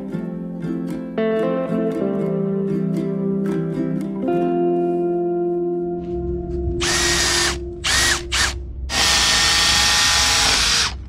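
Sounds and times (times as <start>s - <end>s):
cordless drill spinning: 6.8s - 11.0s.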